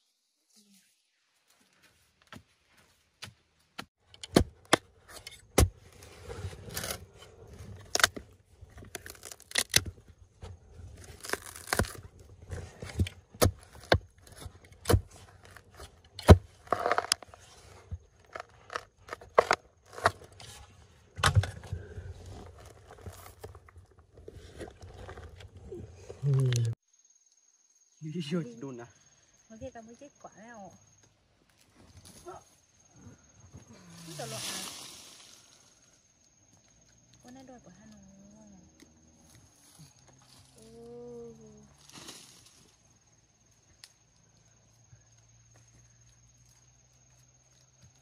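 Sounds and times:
wooden pole striking stony soil: 3.2 - 25.6
earth and pebbles trickling: 34.0 - 37.9.

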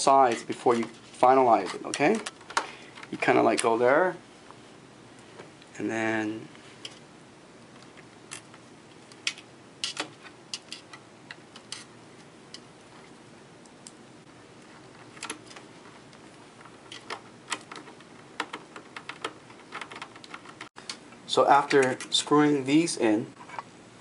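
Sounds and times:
screwdriver and screws clicking on metal: 9.1 - 11.9, 21.6 - 22.2.

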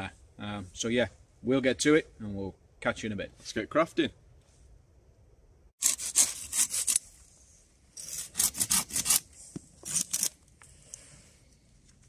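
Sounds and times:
pruning saw cutting branch: 5.8 - 7.0, 8.0 - 10.4.

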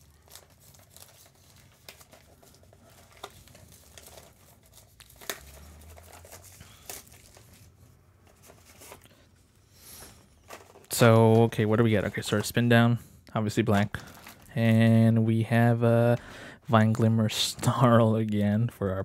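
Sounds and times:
plastic shrink-wrap crinkling: 0.0 - 9.4, 10.2 - 12.6, 13.5 - 15.1.

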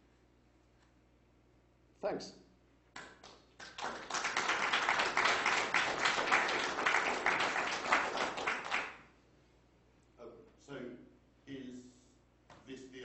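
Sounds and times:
audience applauding: 3.0 - 9.1.

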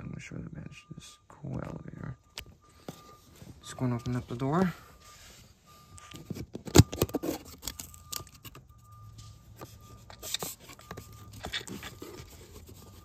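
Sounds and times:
cardboard rustle: 9.6 - 13.0.

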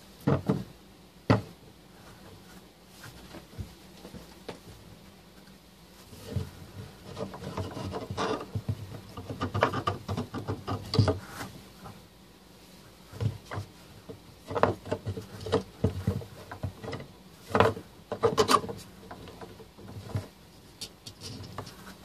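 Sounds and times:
plastic scraping on cardboard: 6.1 - 11.9.

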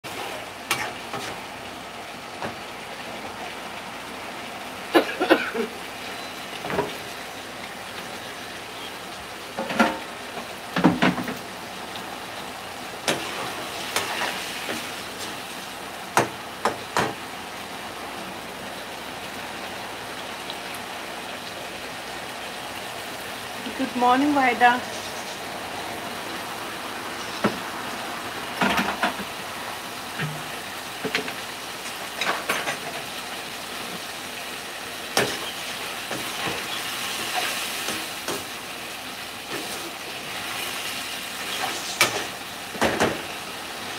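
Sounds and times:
food sizzling in frying pan: 0.0 - 43.9
utensils clinking against pan: 32.2 - 33.1.

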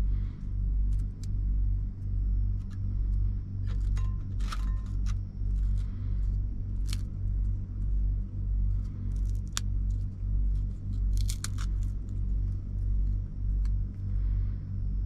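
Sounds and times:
toast snapping: 6.8 - 7.1, 10.8 - 12.2.

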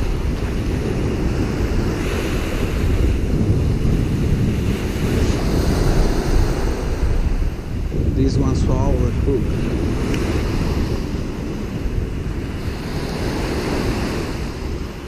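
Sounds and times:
small waves breaking on sand: 0.0 - 15.0
wind rumbling on microphone: 0.0 - 15.0.

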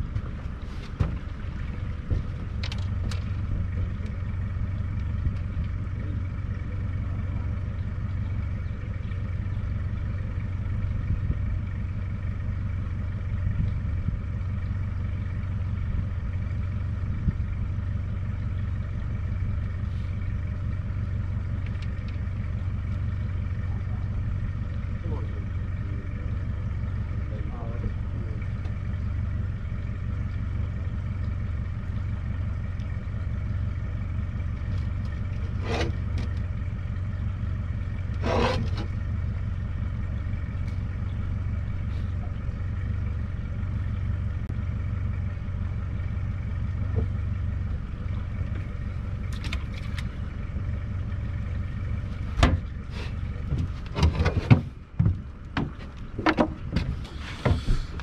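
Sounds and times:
sharp knocks and clunks: 0.0 - 3.9, 35.4 - 36.4, 52.2 - 58.0
boat motor humming: 0.0 - 58.0.

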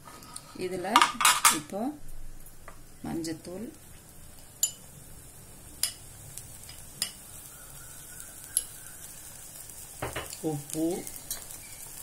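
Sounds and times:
low steady hiss: 0.0 - 12.0
spoon clinking on steel vessels: 4.6 - 4.9.

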